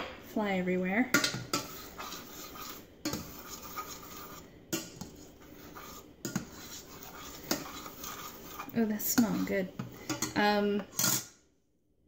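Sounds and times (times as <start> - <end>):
plastic spoon stirring in saucepan: 1.1 - 11.3
spoon knocking pan: 6.2 - 10.4.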